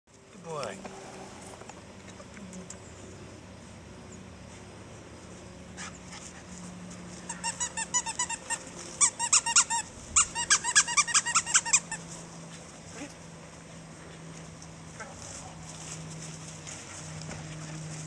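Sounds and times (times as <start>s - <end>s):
rubber squeaky toy squeaking: 7.3s - 12.0s.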